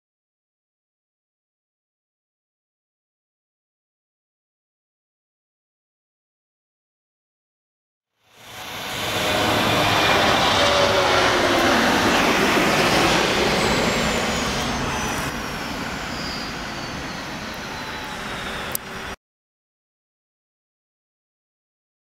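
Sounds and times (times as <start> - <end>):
jet engines at takeoff: 8.2 - 19.2.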